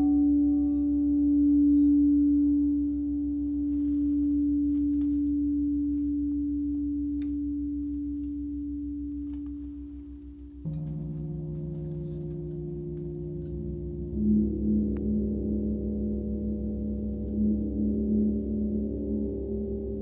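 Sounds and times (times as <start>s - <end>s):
singing bowl ringing: 0.0s - 10.0s, 10.6s - 20.0s
mallets clicking and knocking: 10.6s - 14.2s
gong struck softly: 10.6s - 20.0s.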